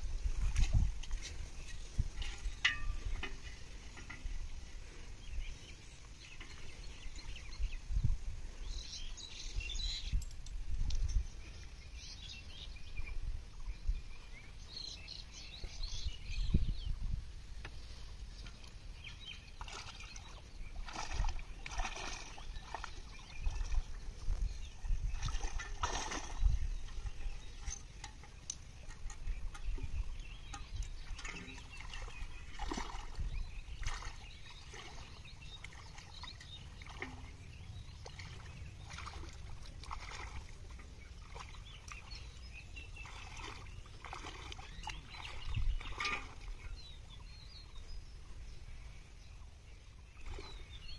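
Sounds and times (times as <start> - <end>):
water sloshing and splashing: 0.0 - 8.1, 10.0 - 48.7, 49.8 - 50.9
net pulled through water: 18.0 - 47.2.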